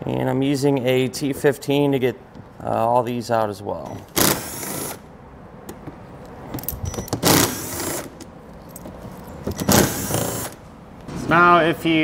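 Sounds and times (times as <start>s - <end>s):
cordless driver whirring: 6.8s - 8.2s, 9.5s - 10.6s.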